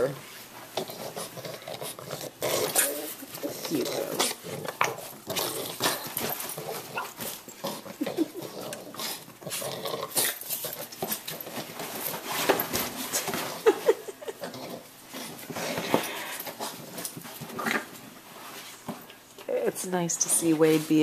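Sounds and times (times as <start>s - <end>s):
scuffling and knocks: 10.5s - 14.0s, 15.3s - 21.0s.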